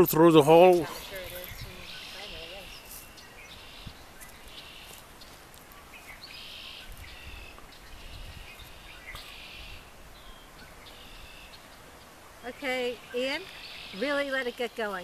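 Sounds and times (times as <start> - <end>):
wind rumble on microphone: 1.0 - 2.9, 6.8 - 11.5.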